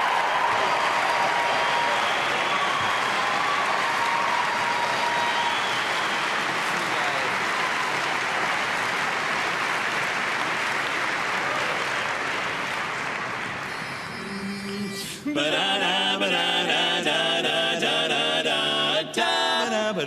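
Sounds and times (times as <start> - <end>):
audience applause: 0.0 - 14.4
male quartet singing a cappella: 14.2 - 20.0.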